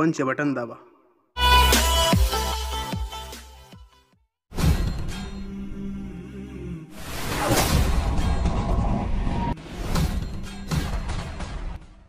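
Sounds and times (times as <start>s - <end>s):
impact sound effects: 7.0s - 12.0s.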